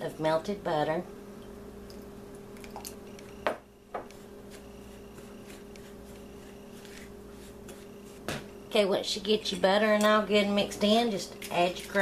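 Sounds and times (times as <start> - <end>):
steady low hum: 0.0 - 12.0
spatula squishing crumbs in bowl: 4.0 - 12.0.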